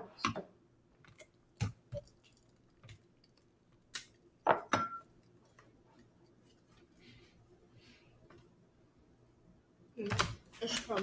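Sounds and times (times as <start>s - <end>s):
kitchen things knocking and clinking: 4.4s - 5.1s.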